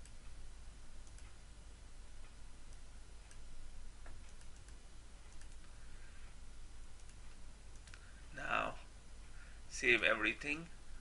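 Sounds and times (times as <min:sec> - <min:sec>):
low hum and hiss: 0:00.0 - 0:11.0
computer mouse clicks: 0:01.0 - 0:01.4, 0:02.7 - 0:05.8, 0:07.0 - 0:08.1.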